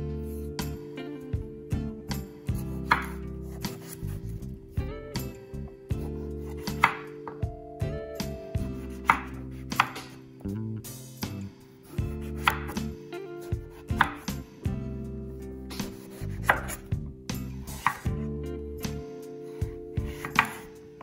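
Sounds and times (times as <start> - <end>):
knife slicing eggplant: 2.6 - 4.6, 6.0 - 7.2, 8.8 - 10.2, 11.9 - 14.4, 15.8 - 18.2
knife tapping wooden cutting board: 2.8 - 3.2, 6.6 - 7.4, 9.0 - 10.1, 12.4 - 12.8, 13.9 - 14.4, 16.5 - 16.8.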